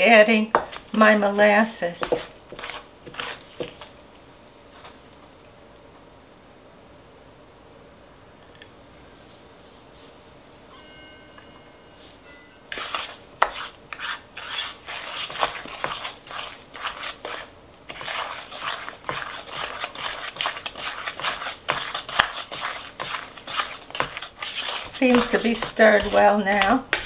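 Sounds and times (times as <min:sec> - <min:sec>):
wooden spoon beating batter in bowl: 0:00.5 - 0:04.0, 0:12.7 - 0:27.0.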